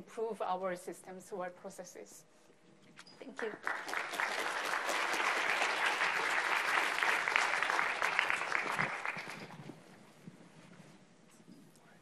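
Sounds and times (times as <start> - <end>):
audience applauding: 3.4 - 9.7.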